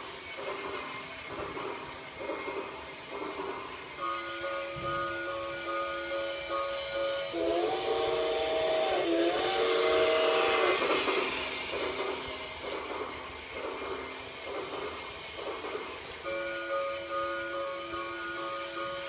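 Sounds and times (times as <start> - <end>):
toy locomotive running noise: 0.0 - 19.0
toy train whistle toots: 4.0 - 13.3, 16.2 - 19.0.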